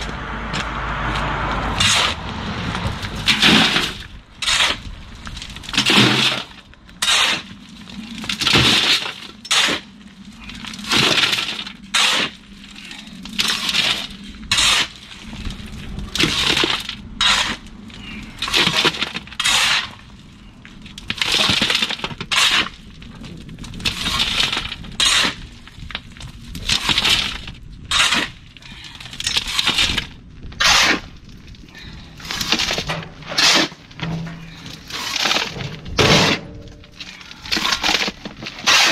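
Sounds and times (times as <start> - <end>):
shovel scraping stone: 1.8 - 2.2, 3.1 - 5.0, 5.7 - 7.6, 8.2 - 9.9, 10.5 - 15.1, 16.2 - 20.1, 21.2 - 22.8, 23.9 - 25.4, 26.7 - 28.4, 29.0 - 31.2, 31.8 - 38.9.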